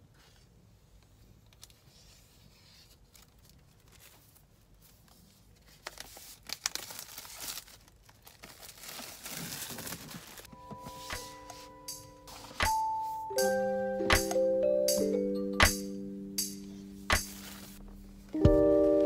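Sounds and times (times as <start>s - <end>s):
plastic shrink-wrap tearing and crinkling: 3.0s - 4.5s, 5.6s - 10.5s.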